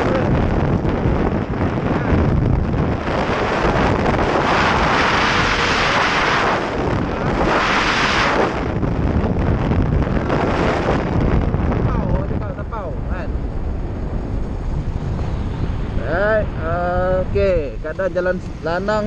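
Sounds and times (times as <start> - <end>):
wind buffeting microphone: 0.0 - 19.0
scooter engine and road noise: 13.4 - 19.0.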